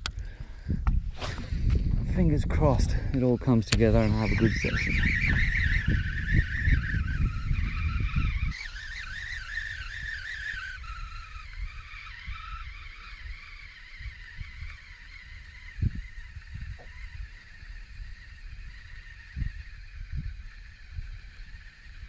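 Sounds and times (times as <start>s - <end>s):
fishing reel gears whining: 1.4s - 22.0s.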